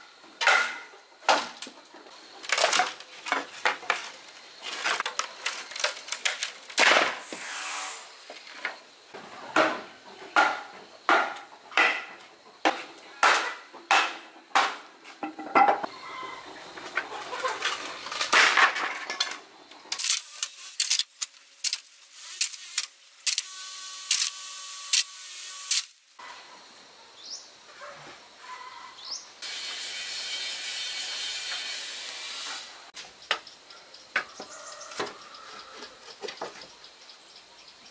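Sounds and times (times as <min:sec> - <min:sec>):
steady hiss: 0:06.3 - 0:09.2, 0:19.7 - 0:26.2.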